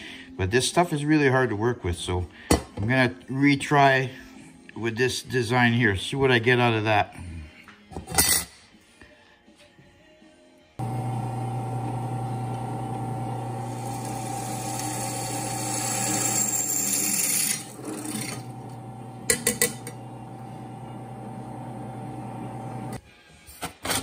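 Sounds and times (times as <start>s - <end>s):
drill press motor running: 10.8s - 23.0s
drill bit grinding into steel: 11.4s - 20.0s.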